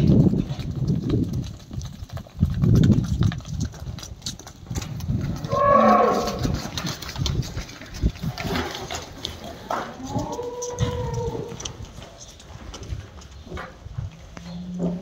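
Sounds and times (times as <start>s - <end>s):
cows mooing: 5.4s - 6.6s.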